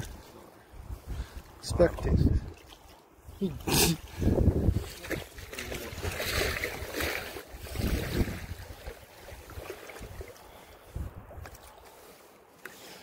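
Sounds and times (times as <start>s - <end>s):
water lapping on shore: 0.0s - 13.0s
wind buffeting microphone: 0.8s - 2.6s, 4.1s - 11.6s.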